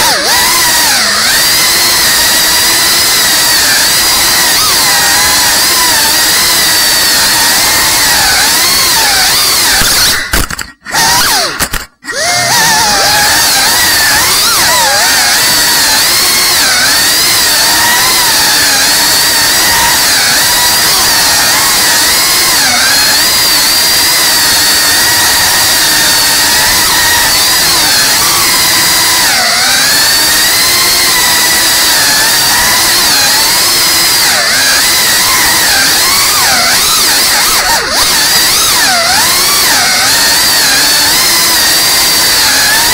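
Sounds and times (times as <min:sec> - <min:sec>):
drone motors whining: 0:00.0 - 0:42.9.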